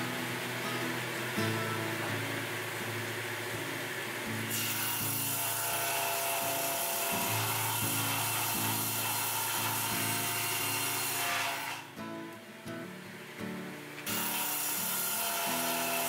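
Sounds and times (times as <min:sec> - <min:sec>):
table saw cutting board: 0:04.4 - 0:11.9, 0:14.0 - 0:16.0.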